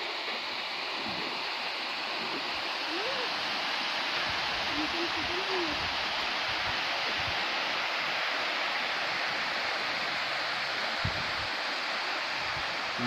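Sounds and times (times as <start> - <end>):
water rushing over dam spillway: 0.0 - 13.0.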